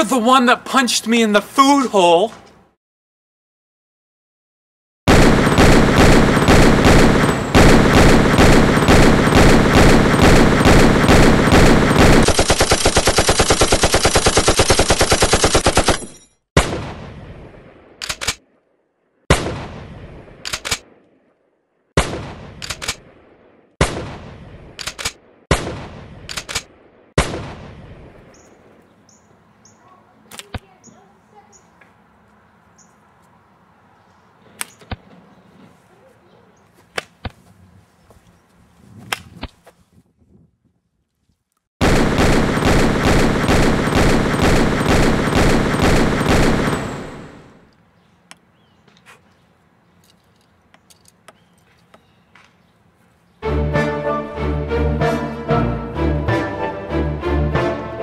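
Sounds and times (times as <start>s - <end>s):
automatic gunfire: 5.1s - 16.8s, 41.8s - 47.5s
rapid gunfire: 5.1s - 17.0s, 41.8s - 47.6s
single gunshots with echo: 19.3s - 21.0s, 22.0s - 24.8s, 25.4s - 28.1s.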